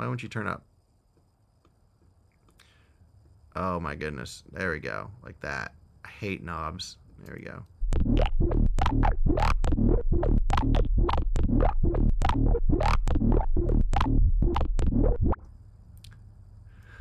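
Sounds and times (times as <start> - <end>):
filtered electronic beat with bass: 7.8 - 15.4.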